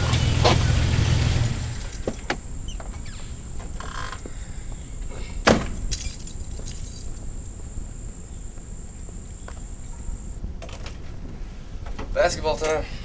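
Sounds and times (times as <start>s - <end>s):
car door slamming: 5.4s - 5.9s
metallic jingle: 5.7s - 7.3s.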